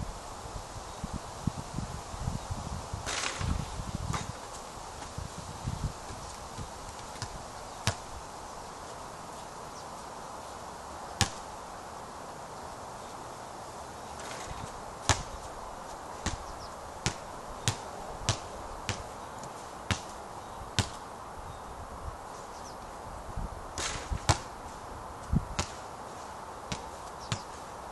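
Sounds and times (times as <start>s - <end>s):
steady background hiss: 0.0s - 27.9s
basketball bouncing: 11.2s - 11.4s, 15.0s - 15.3s, 16.2s - 19.0s, 20.8s - 21.0s, 23.8s - 24.5s.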